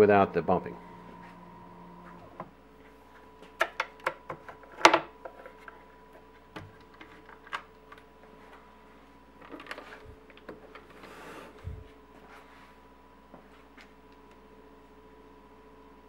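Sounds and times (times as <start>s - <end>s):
stepper motor whine: 0.0s - 2.7s.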